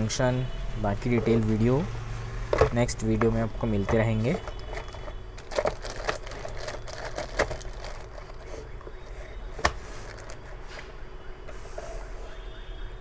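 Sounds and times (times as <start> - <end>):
plastic bag crinkling: 4.5 - 8.8, 10.0 - 10.5.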